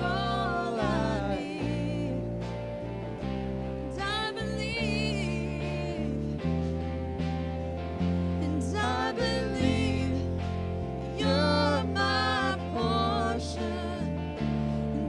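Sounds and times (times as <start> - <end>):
woman singing lead: 0.0 - 3.2, 3.8 - 6.7, 8.3 - 15.0
bass notes: 0.0 - 15.0
electric guitar: 0.0 - 15.0
keyboard: 0.0 - 15.0
drums: 0.8 - 4.1.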